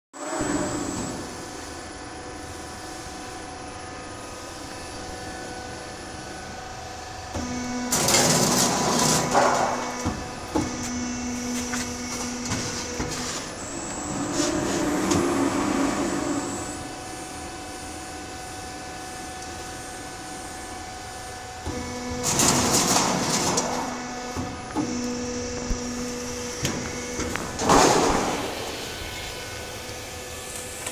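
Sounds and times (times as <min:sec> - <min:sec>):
machine humming: 0:00.2 - 0:30.9.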